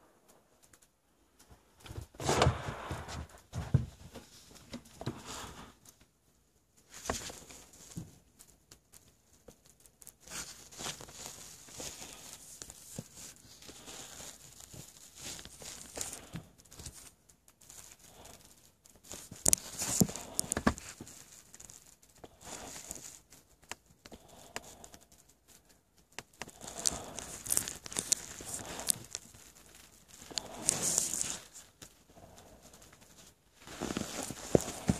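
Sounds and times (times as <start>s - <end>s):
fabric rustling and scraping: 1.6s - 5.8s, 10.2s - 18.0s, 18.9s - 21.8s, 26.6s - 34.9s.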